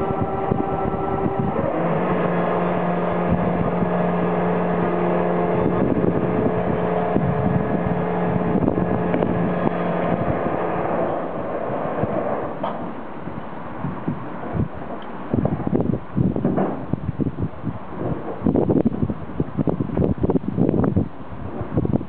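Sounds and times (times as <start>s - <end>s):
hoist motor humming: 0.0s - 12.8s.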